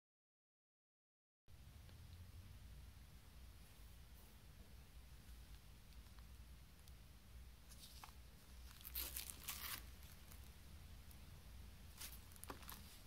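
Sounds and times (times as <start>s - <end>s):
cellophane crinkling: 7.7s - 10.6s, 11.9s - 13.0s.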